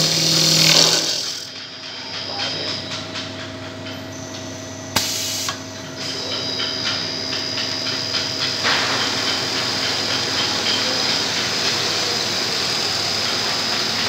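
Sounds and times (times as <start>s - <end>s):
lathe motor hum: 0.0s - 1.6s
loud hiss: 5.0s - 5.6s.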